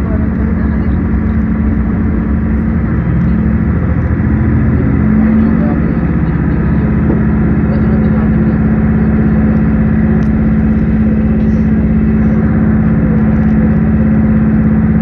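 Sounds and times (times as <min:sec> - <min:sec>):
vehicle engine drone: 0:00.0 - 0:15.0.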